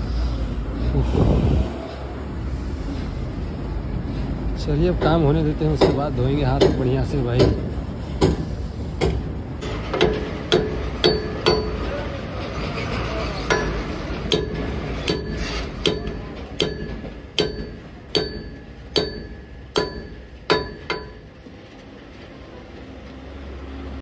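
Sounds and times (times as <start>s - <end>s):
hammer striking steel hub: 5.0s - 12.0s, 13.4s - 21.4s.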